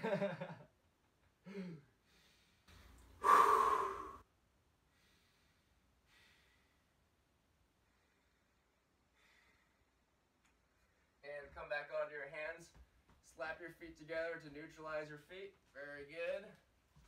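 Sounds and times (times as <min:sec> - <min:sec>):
faint breaths: 0:01.4 - 0:11.2
man exhaling loudly: 0:03.2 - 0:04.2.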